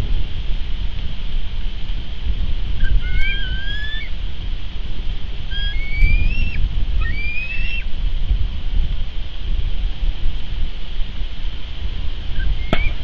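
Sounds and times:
wind rumbling on microphone: 0:00.0 - 0:13.0
eagle whistled calls: 0:02.8 - 0:04.2, 0:05.5 - 0:07.9, 0:12.3 - 0:13.0.

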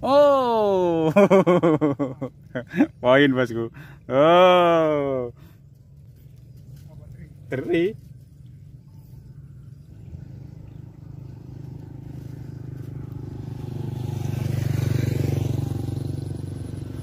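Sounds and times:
vehicle engine passing by: 0:05.9 - 0:17.0.

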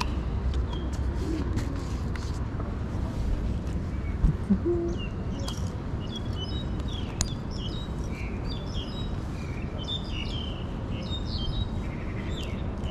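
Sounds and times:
low background rumble: 0:02.7 - 0:06.6
small birds chirping: 0:03.7 - 0:12.9.

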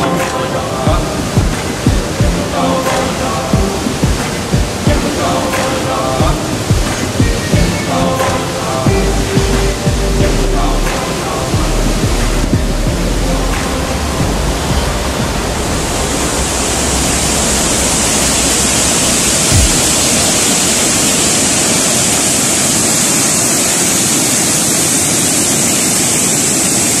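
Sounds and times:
waterfall rushing: 0:00.0 - 0:27.0
low thump: 0:19.5 - 0:20.1.

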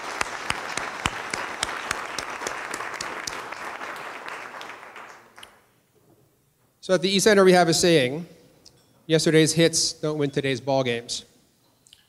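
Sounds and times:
crowd applauding: 0:00.0 - 0:05.6
sharp close claps: 0:00.0 - 0:05.7.

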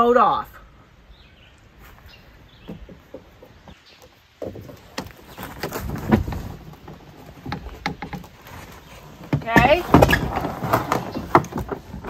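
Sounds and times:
canoe hull knocking and scraping: 0:02.5 - 0:12.0.

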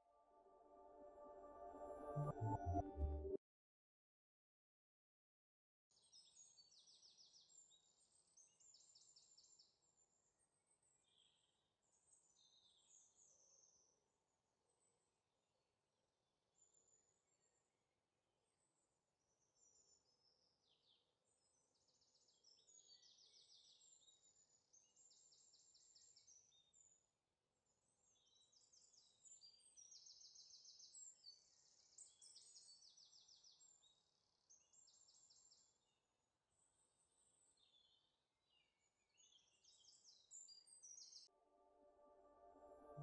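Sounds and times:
faint songbirds chirping: 0:28.0 - 0:36.0, 0:36.6 - 0:41.3.

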